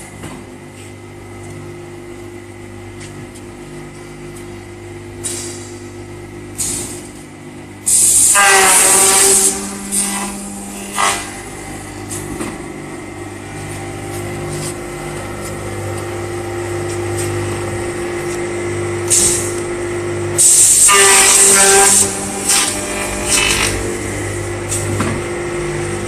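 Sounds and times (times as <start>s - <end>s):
saw motor hum: 7.9s - 26.0s
saw cutting through wood: 8.2s - 11.6s, 20.4s - 24.3s.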